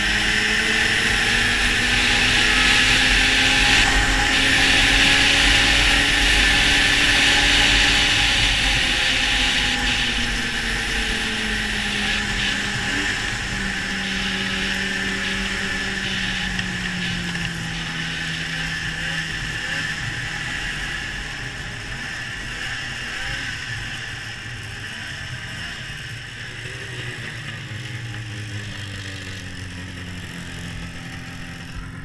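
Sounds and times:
snowmobile engine at speed: 0.0s - 32.0s
track and wind noise: 0.0s - 32.0s.

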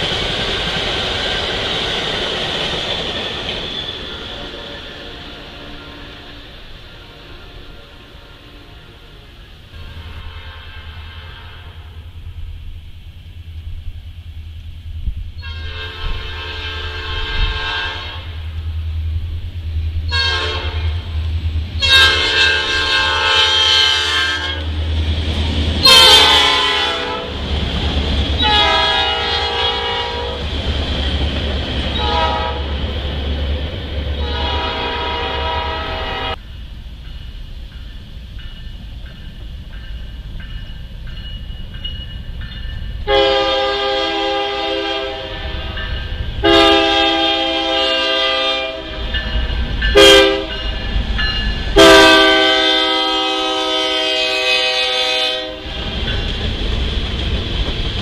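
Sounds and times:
train rumbling: 0.0s - 58.0s
locomotive air horn blasts: 4.1s - 12.1s, 15.4s - 18.4s, 20.1s - 21.0s, 21.8s - 24.7s, 25.8s - 27.4s, 28.4s - 30.4s, 32.0s - 32.8s, 34.2s - 36.4s, 43.0s - 49.1s, 50.0s - 50.7s, 51.8s - 55.8s
second locomotive horn: 4.1s - 12.1s, 15.4s - 18.5s, 20.1s - 21.1s, 21.8s - 24.7s, 25.8s - 27.4s, 28.4s - 30.4s, 31.9s - 32.8s, 34.2s - 36.4s, 43.0s - 49.1s, 50.0s - 50.7s, 51.8s - 55.8s.

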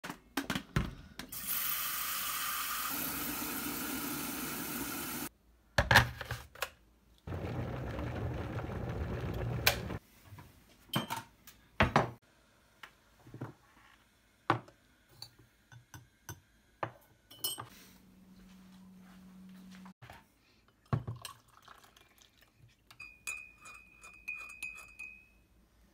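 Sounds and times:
electric kettle heating: 1.4s - 5.3s, 7.3s - 10.0s
tap water running into kettle: 1.4s - 5.3s
clinks of lids jars and mug: 17.3s - 17.7s, 22.9s - 25.3s.

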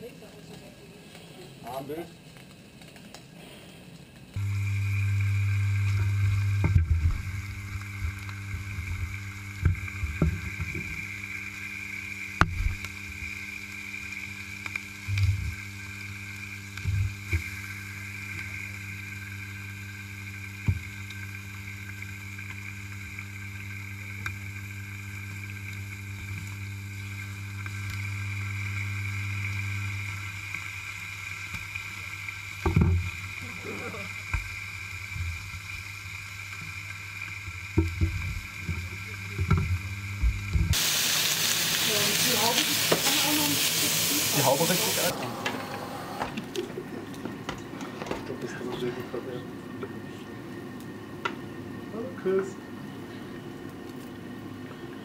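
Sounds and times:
bacon sizzling in a frying pan: 0.0s - 45.2s
steady low hum: 4.3s - 40.8s.

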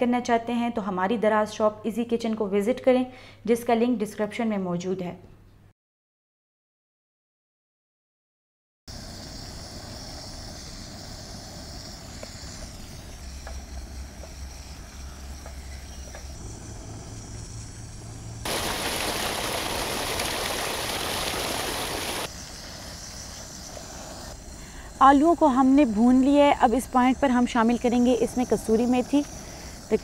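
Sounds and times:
potatoes frying in a wok: 8.9s - 16.1s
rushing water from a cascade: 18.5s - 22.3s.

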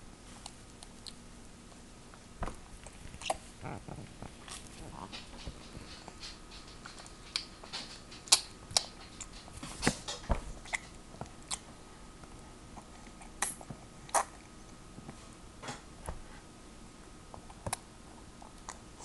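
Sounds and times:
baby eating wet smacks: 2.4s - 11.7s, 12.8s - 14.5s.

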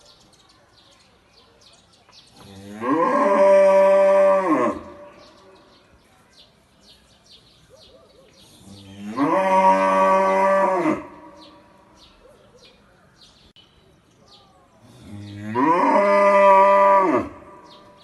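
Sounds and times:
cow mooing: 8.7s - 11.4s, 15.1s - 17.5s.

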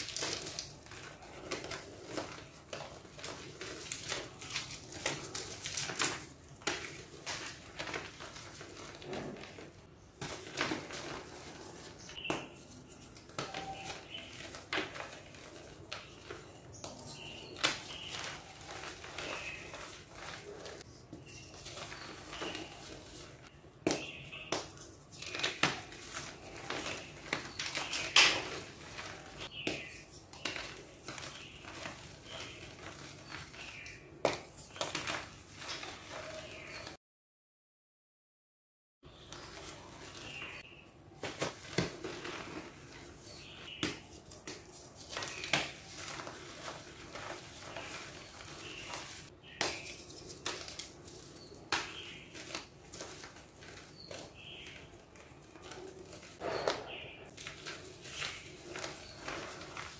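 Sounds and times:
chalk chunks snapping: 0.0s - 8.7s, 43.3s - 59.9s
chalk crunching and crackling: 0.0s - 36.9s, 39.2s - 59.9s.

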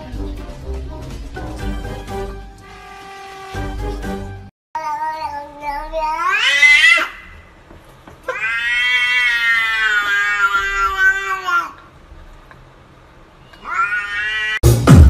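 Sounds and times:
cat meowing: 4.8s - 7.3s, 8.3s - 11.8s, 13.4s - 14.6s.

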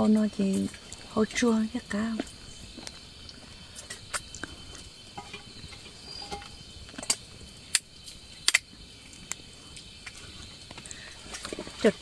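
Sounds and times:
crickets chirring: 0.0s - 12.0s
sharp clicks and cracks: 6.3s - 9.4s.

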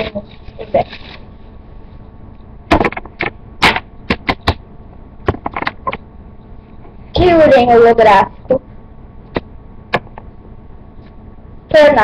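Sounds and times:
cards clicking and tapping: 2.7s - 4.6s, 5.3s - 6.0s.

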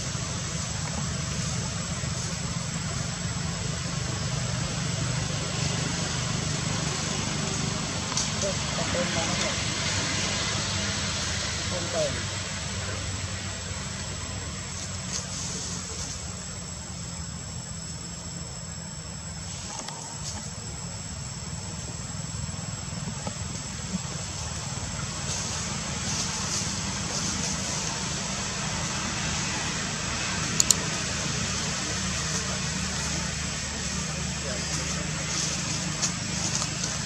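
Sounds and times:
low outdoor rumble: 0.0s - 37.0s
sharp clicks: 30.6s - 30.8s.

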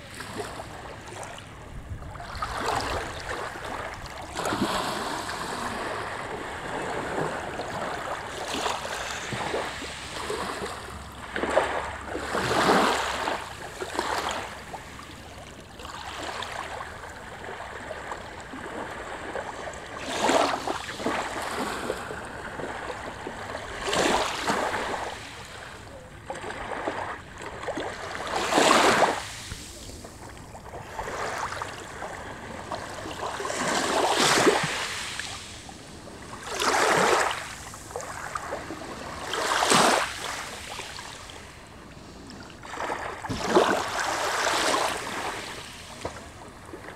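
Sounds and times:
small waves lapping on shore: 0.0s - 46.9s.

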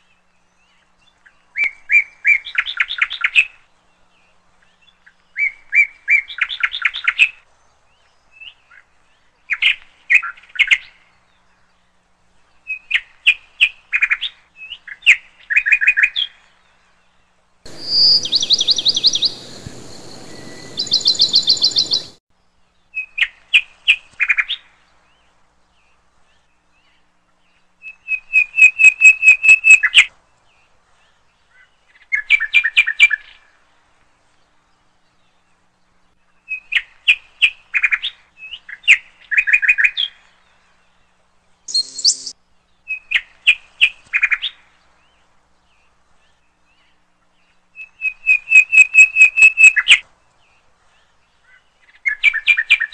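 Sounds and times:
bird chirping and trilling: 17.7s - 22.2s, 41.7s - 42.3s, 47.8s - 50.0s.

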